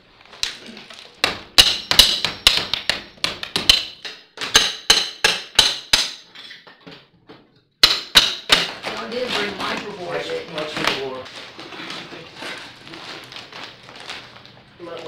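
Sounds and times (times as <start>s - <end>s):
ringing hammer blows: 1.6s - 3.2s.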